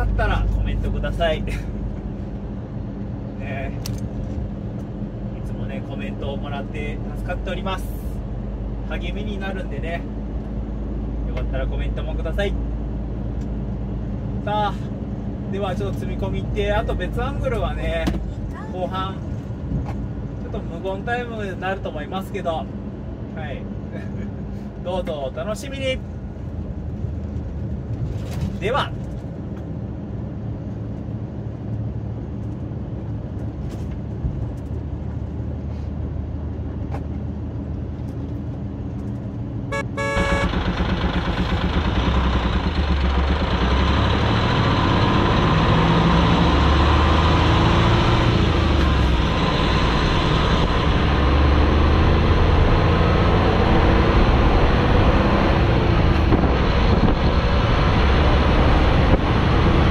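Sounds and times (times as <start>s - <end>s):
road noise: 0.0s - 59.9s
truck diesel engine running: 38.5s - 59.9s
wind noise: 53.6s - 59.9s.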